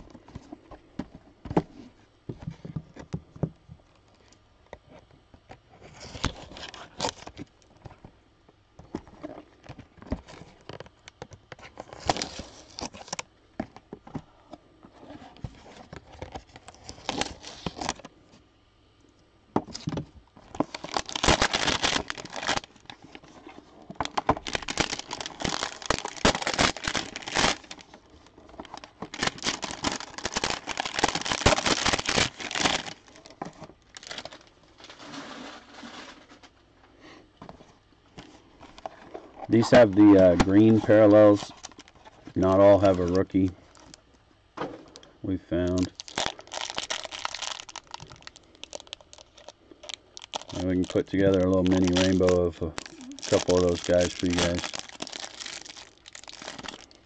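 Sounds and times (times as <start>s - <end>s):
packaging crinkling and tearing: 5.9s - 7.7s, 9.2s - 13.3s, 15.0s - 18.1s, 19.7s - 36.5s, 38.2s - 44.1s, 44.9s - 57.0s.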